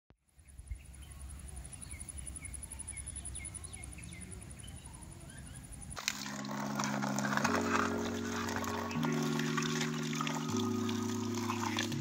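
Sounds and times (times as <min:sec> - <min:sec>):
bird chirping: 0:00.3 - 0:06.5.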